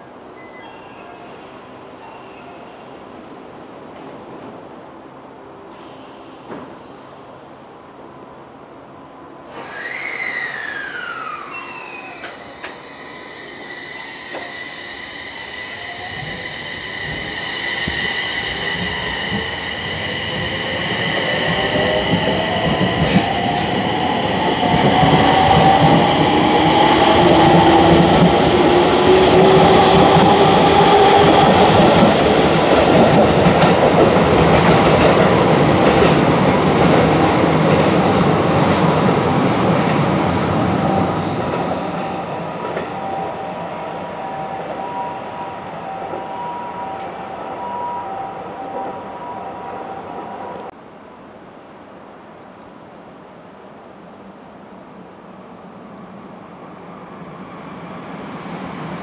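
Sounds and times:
air hiss with falling tone: 0:09.5 - 0:22.1
train wheels rumbling on rails: 0:09.5 - 0:43.4.

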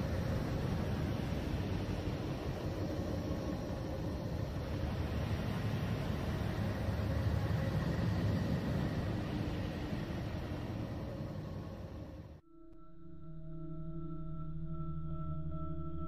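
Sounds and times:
low rumbling drone: 0:00.0 - 0:16.0
faint held tones: 0:12.4 - 0:16.0.

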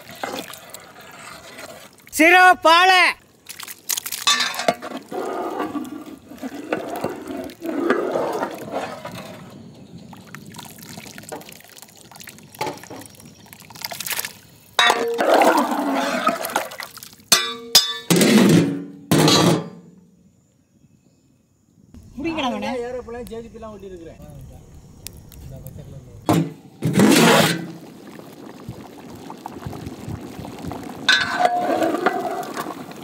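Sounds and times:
curry sloshing with ladle: 0:00.0 - 0:02.1, 0:30.8 - 0:33.0
metal lid clanging: 0:04.3 - 0:04.8, 0:14.8 - 0:15.3, 0:17.3 - 0:19.8, 0:31.1 - 0:32.2.

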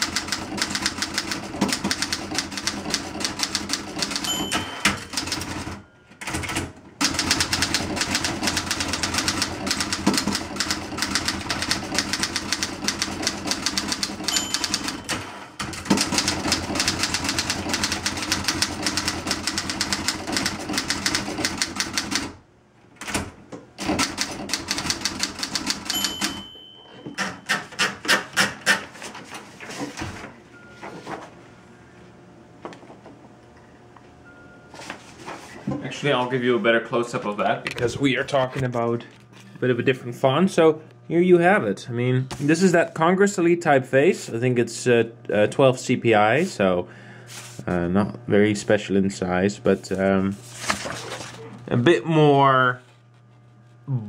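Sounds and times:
manual typewriter typing: 0:00.0 - 0:22.4, 0:23.0 - 0:26.4
typewriter bell ring: 0:01.7 - 0:06.4, 0:08.5 - 0:16.3, 0:24.9 - 0:27.6.

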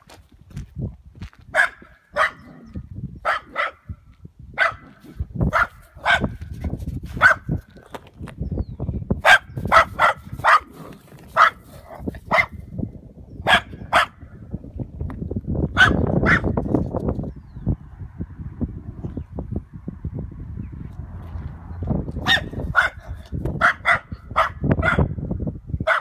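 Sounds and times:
dog barking: 0:01.5 - 0:02.6, 0:03.2 - 0:03.9, 0:04.6 - 0:06.4, 0:07.2 - 0:07.5, 0:09.2 - 0:12.6, 0:13.4 - 0:14.2, 0:15.8 - 0:16.5, 0:22.2 - 0:25.2.

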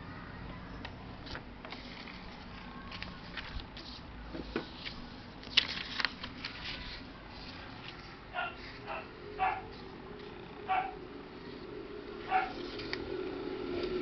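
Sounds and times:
paper rustling and crinkling: 0:01.2 - 0:09.0.

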